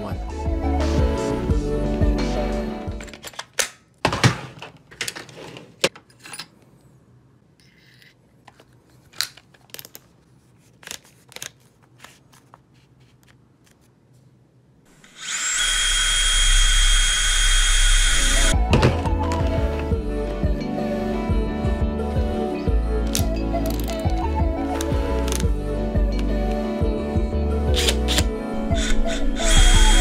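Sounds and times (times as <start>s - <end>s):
cordless drill whining: 15.0s - 18.6s, 27.8s - 30.0s.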